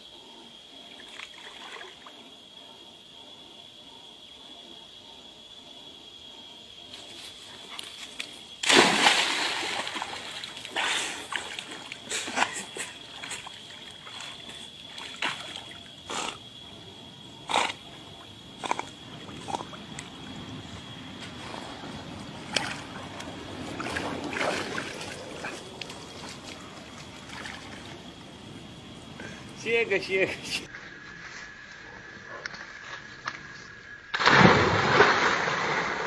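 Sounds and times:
splashing and sloshing water: 1.0s - 2.1s, 7.6s - 16.0s, 21.3s - 28.4s, 34.1s - 36.0s
big splash into water: 8.6s - 11.8s, 34.1s - 36.0s.

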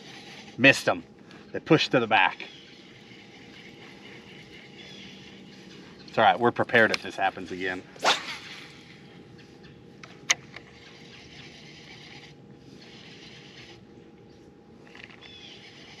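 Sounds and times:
electric motor humming: 10.3s - 16.0s.

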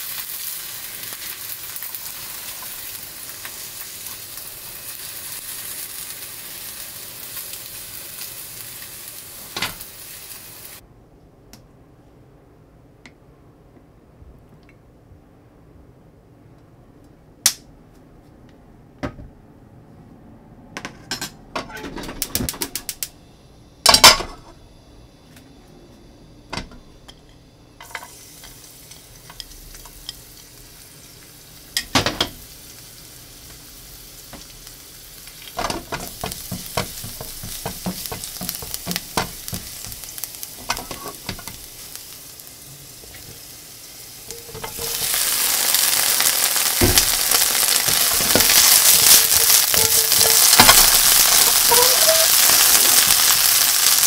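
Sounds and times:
garlic sizzling in hot oil: 0.0s - 10.8s, 27.8s - 54.0s
utensils knocking on pan: 35.6s - 41.6s, 44.3s - 45.4s, 46.8s - 53.3s.

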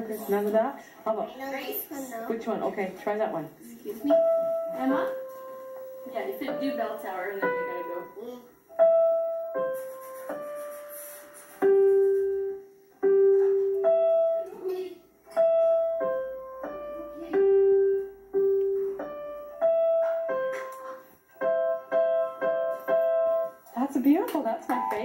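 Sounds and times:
slow digital piano melody: 4.0s - 10.8s, 11.6s - 25.0s.

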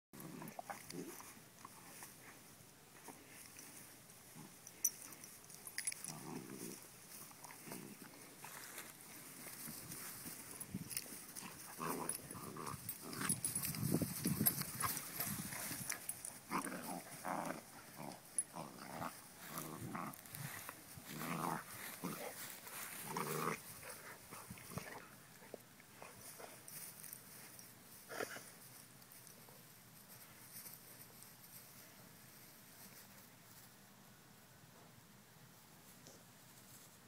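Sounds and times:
puppy growling: 14.8s - 20.3s.

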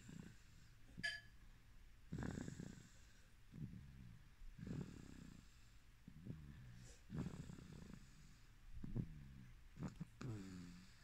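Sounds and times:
baby snoring softly: 4.6s - 11.0s.

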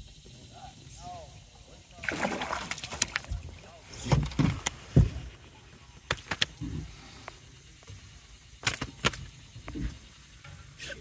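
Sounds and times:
thumps against aluminum boat: 3.3s - 5.3s.

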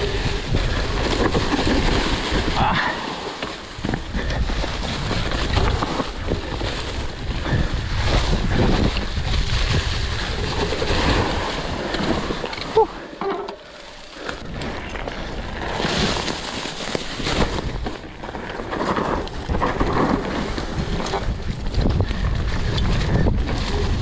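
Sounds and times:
wind buffeting microphone: 0.0s - 3.0s, 3.6s - 12.7s, 19.0s - 24.0s
bike knocking and rattling: 0.0s - 24.0s
bike tyres rumbling on dirt: 0.0s - 24.0s.

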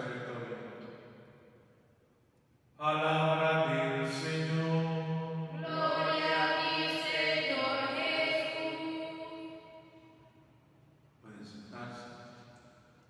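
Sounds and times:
man chanting in long notes: 2.8s - 7.7s.

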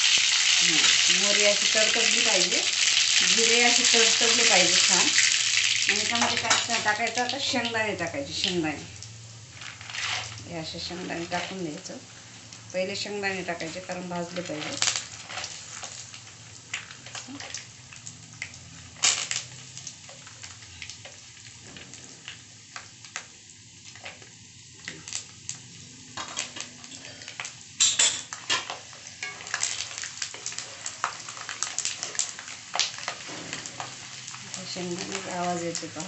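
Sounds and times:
peanuts frying in hot oil: 0.0s - 36.0s
seeds crackling and popping: 8.9s - 11.9s, 13.6s - 36.0s
spatula stirring in a pan: 14.6s - 16.1s, 26.2s - 35.4s.

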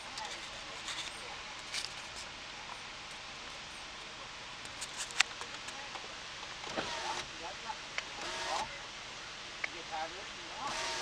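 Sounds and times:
car cabin hiss: 6.6s - 7.5s, 8.1s - 8.8s, 9.7s - 11.0s.

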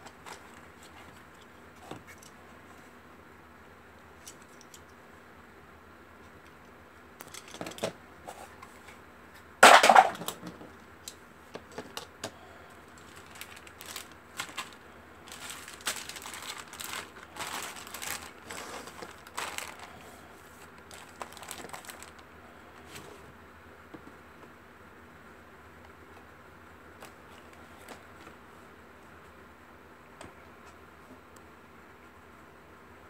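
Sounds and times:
plastic bags crinkling: 12.8s - 22.3s.

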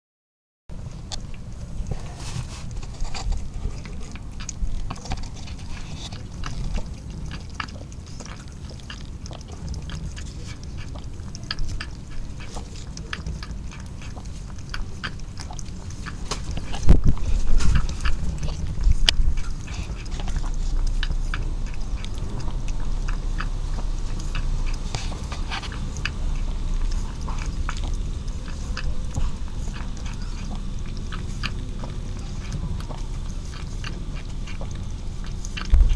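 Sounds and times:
cat lapping milk: 0.7s - 35.9s
low rumble: 0.7s - 35.9s
low bumps: 34.4s - 35.9s.

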